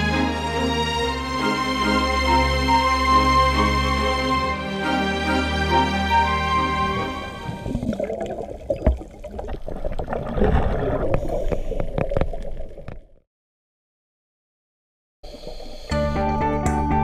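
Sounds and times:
underwater bubbling and gurgling: 0:07.3 - 0:13.2.

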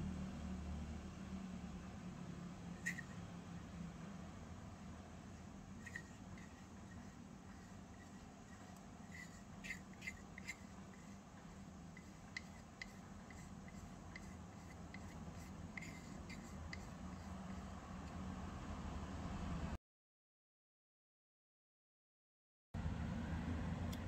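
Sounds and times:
utensil scraping metal bowl: 0:02.7 - 0:03.2, 0:05.3 - 0:18.1.

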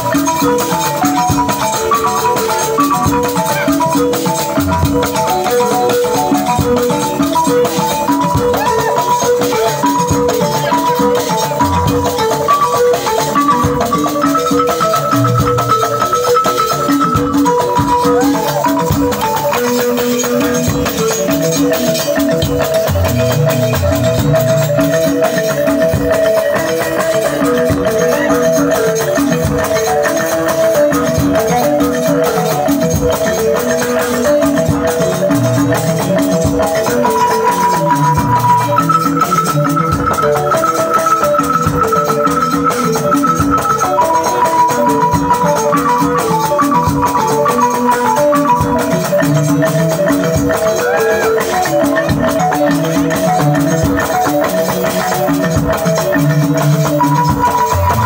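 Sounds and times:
balafon dance music: 0:00.0 - 0:58.0.

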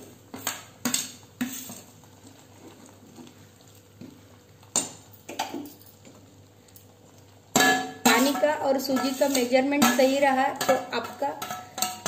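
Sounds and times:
spoon clinking on metal pot: 0:07.6 - 0:12.0.

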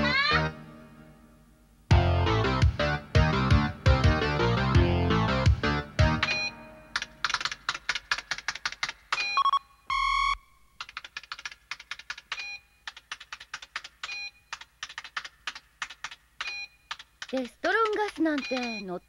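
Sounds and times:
rapid keyboard typing clicks: 0:07.0 - 0:09.4, 0:10.8 - 0:19.0
computer beep: 0:09.2 - 0:10.5, 0:18.4 - 0:19.0.

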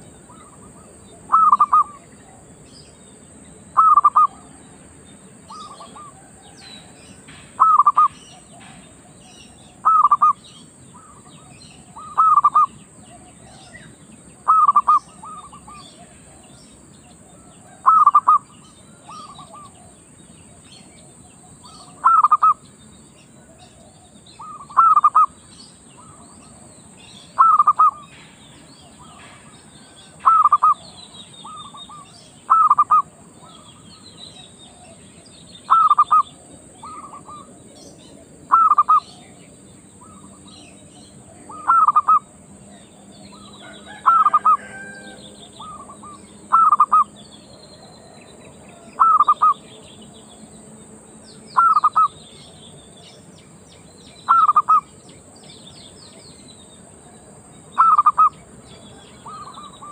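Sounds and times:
dove cooing: 0:00.0 - 0:02.5, 0:03.8 - 0:04.5, 0:05.5 - 0:06.5, 0:07.6 - 0:16.6, 0:17.2 - 0:22.6, 0:23.4 - 0:25.3, 0:27.3 - 0:28.1, 0:29.0 - 0:35.0, 0:35.7 - 0:39.4, 0:41.2 - 0:42.3, 0:42.9 - 0:47.1, 0:47.8 - 0:49.6, 0:51.6 - 0:52.1, 0:54.3 - 0:54.9, 0:57.8 - 0:59.9
faint bird chirping: 0:00.0 - 0:59.9.

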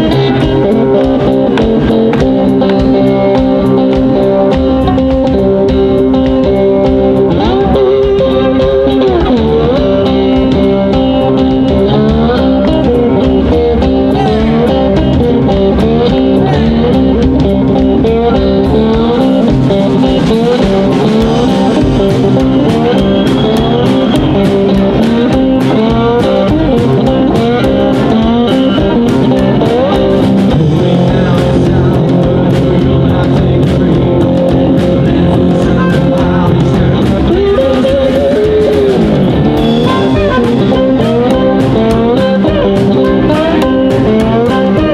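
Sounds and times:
drums: 0:00.0 - 0:44.9
electric guitar: 0:00.0 - 0:44.9
upright double bass: 0:00.0 - 0:44.9
harmonica: 0:39.6 - 0:44.9.

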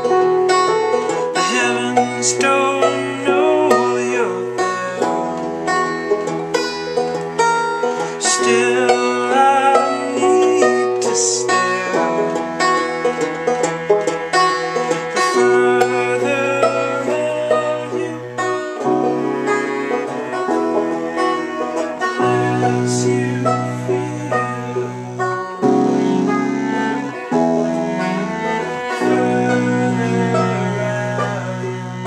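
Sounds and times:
banjo: 0:00.0 - 0:32.0
held low bass notes: 0:08.5 - 0:32.0.

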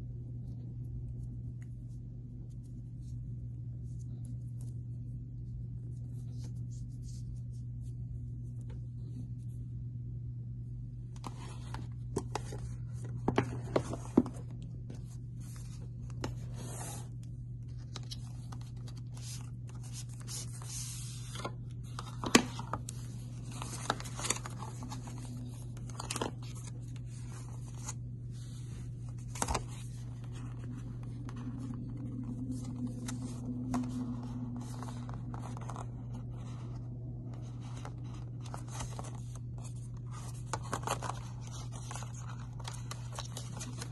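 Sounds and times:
steady low hum: 0:00.0 - 0:43.9
paper packaging rustling: 0:11.2 - 0:43.9.

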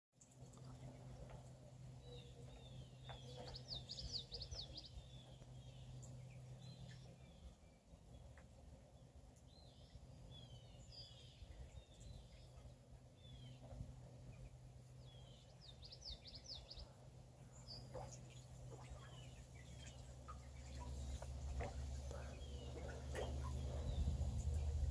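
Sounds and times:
ducklings peeping: 0:00.4 - 0:07.6, 0:17.6 - 0:24.9.

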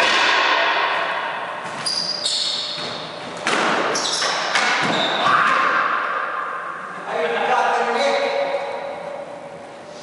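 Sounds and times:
racquet hitting ball: 0:00.0 - 0:06.3
ball hitting walls echoing: 0:00.0 - 0:07.0
sneakers squeaking on hardwood: 0:01.7 - 0:05.3.

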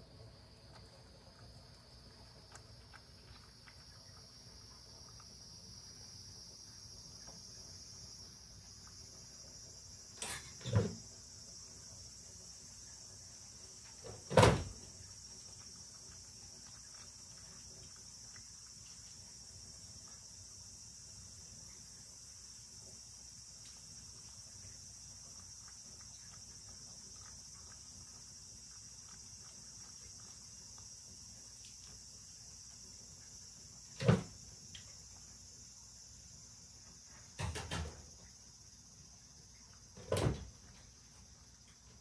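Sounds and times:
insects chirring: 0:00.0 - 0:42.0
cat lapping from a bowl: 0:00.3 - 0:06.2, 0:13.4 - 0:21.4, 0:23.1 - 0:32.1.

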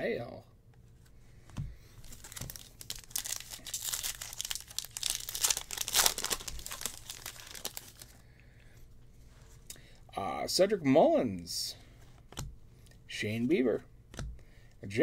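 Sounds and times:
wrapper crinkling as torn open: 0:02.0 - 0:08.1.

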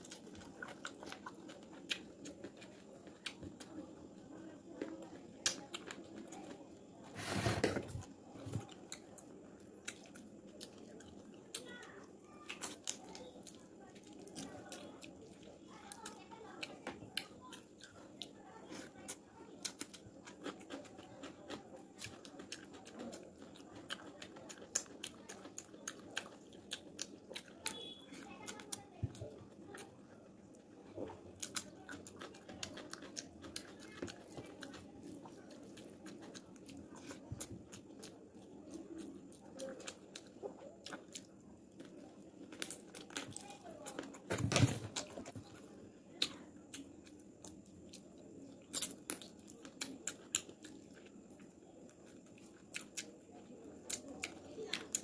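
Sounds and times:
wet chewing and lip-smacking: 0:00.0 - 0:03.8, 0:08.4 - 0:44.3, 0:44.9 - 0:55.0
low background hum: 0:00.0 - 0:55.0.

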